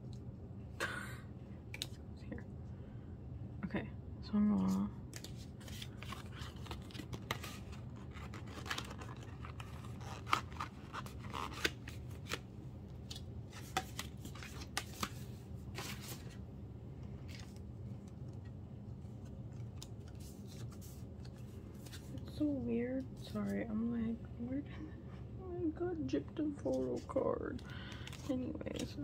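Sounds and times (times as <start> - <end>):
low steady hum: 0.0 - 29.0
packaging rustling: 5.2 - 16.4.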